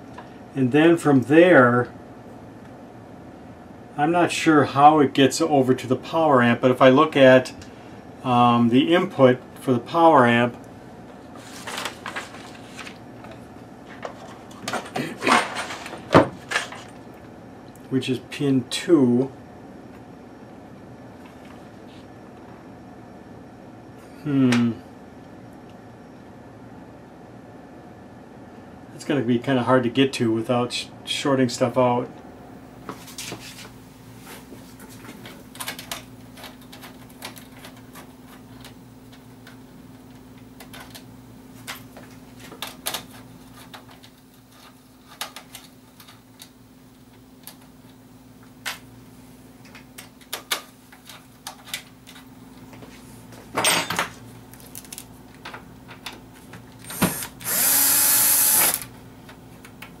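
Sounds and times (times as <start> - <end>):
faint steady hum: 0.0 - 60.0
cordless drill whirring: 56.9 - 58.9.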